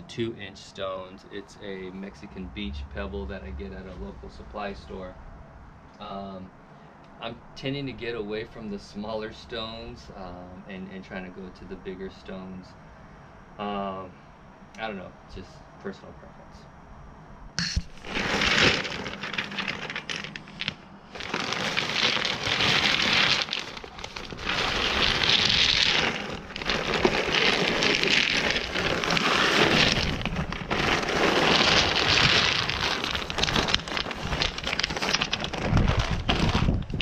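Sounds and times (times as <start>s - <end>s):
pebbles clattering onto fabric: 17.6s - 37.0s
plastic bag crinkling: 17.8s - 37.0s.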